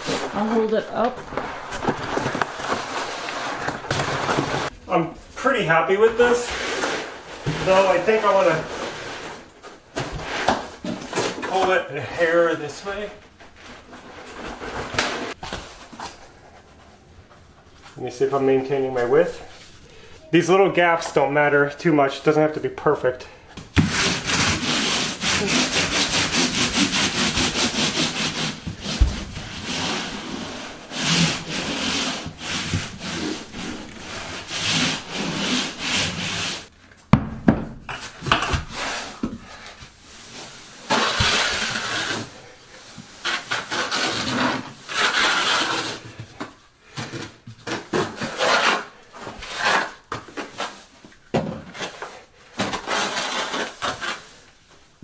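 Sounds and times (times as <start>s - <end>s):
block rubbing over membrane: 23.8s - 36.7s
trowel scraping mortar: 40.8s - 42.4s, 43.2s - 46.1s, 47.7s - 50.9s, 51.7s - 54.4s.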